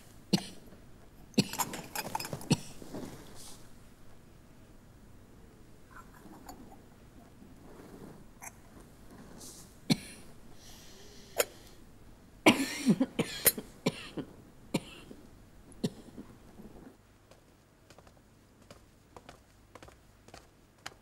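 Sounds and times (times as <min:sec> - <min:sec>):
woman coughing: 0:12.5 - 0:14.2.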